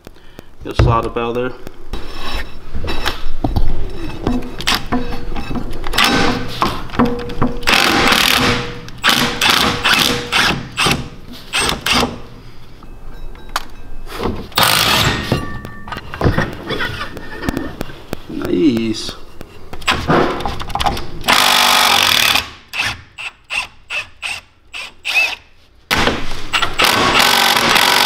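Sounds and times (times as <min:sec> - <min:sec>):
metallic knocks: 0:03.4 - 0:08.9, 0:13.2 - 0:17.6
impact wrench hammering: 0:05.9 - 0:12.2, 0:14.6 - 0:15.8, 0:26.0 - 0:28.0.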